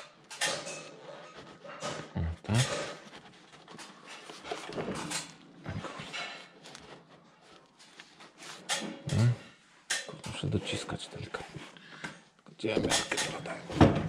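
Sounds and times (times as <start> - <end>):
knocks and rustles of handling: 0.0 - 14.0
person breathing: 11.6 - 12.3.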